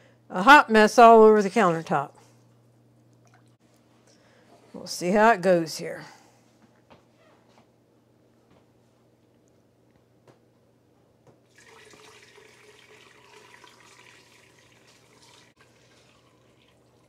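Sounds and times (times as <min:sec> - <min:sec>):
broth pouring through strainer into pot: 0:11.5 - 0:17.0.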